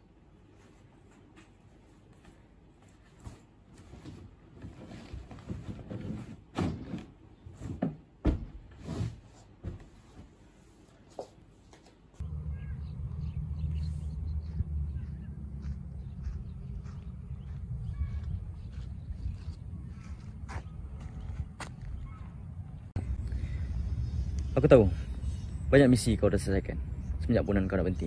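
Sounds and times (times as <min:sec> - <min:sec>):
birds calling: 0:12.2 - 0:23.5
low rumble: 0:12.2 - 0:27.3.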